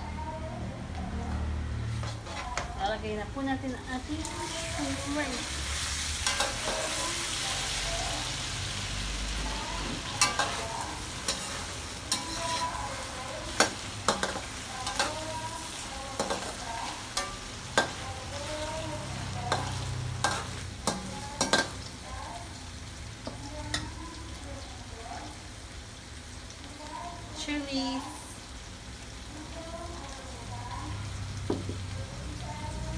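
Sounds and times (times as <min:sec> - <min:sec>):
metal spoon scraping a pan: 0:01.9 - 0:02.8, 0:05.6 - 0:07.4, 0:10.0 - 0:21.9
shrimp sizzling in a pan: 0:03.7 - 0:32.9.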